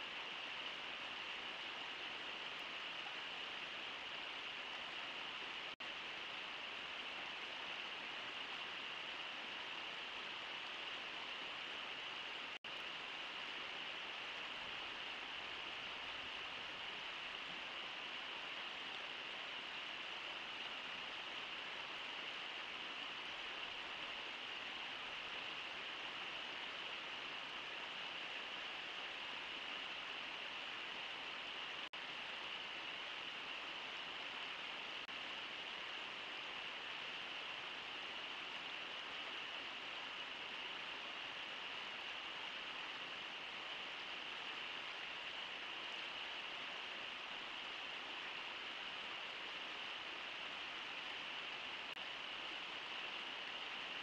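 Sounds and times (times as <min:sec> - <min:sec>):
river water rushing: 0:00.0 - 0:54.0.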